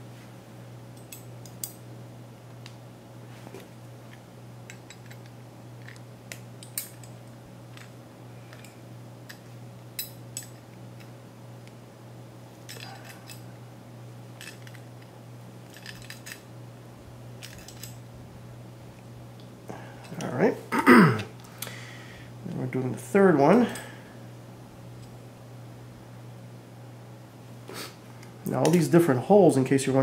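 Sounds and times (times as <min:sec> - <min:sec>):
steady low hum: 0:00.0 - 0:30.0
small metal clicks and clinks: 0:01.0 - 0:01.8, 0:04.7 - 0:07.9, 0:10.0 - 0:11.1, 0:12.7 - 0:13.4, 0:15.7 - 0:16.4, 0:17.4 - 0:18.0.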